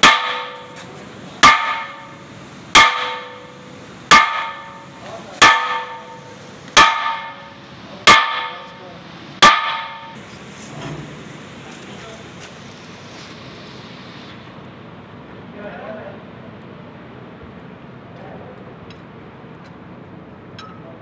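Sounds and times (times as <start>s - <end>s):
hammer striking metal flywheel: 0.0s - 10.2s.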